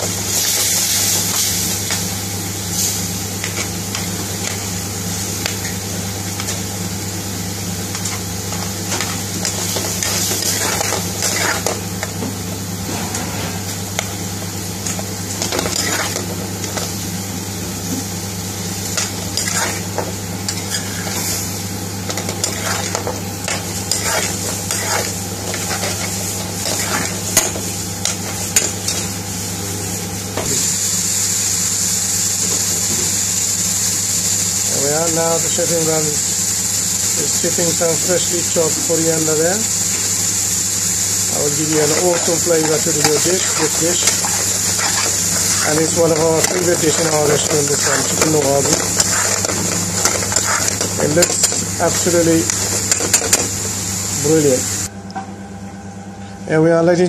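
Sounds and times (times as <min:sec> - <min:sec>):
curry sizzling in a frying pan: 0:00.0 - 0:12.9, 0:13.5 - 0:54.9
metal utensil scraping a pan: 0:22.1 - 0:27.6, 0:41.6 - 0:53.4.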